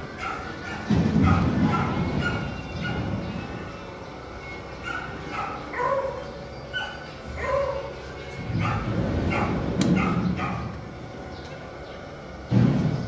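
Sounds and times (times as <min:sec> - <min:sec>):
dog yipping: 0:00.2 - 0:03.1, 0:04.8 - 0:08.0, 0:08.6 - 0:10.7.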